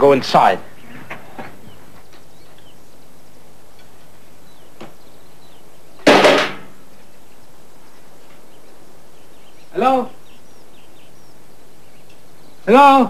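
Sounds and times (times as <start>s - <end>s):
loud bang with ringing tail: 6.0s - 6.7s.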